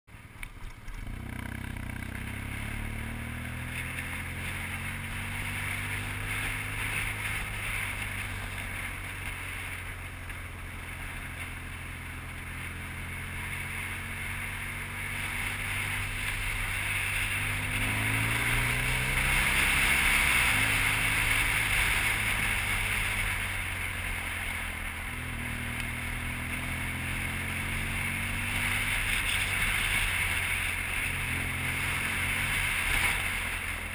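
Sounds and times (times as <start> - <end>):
motorcycle engine running: 0.1 - 33.9.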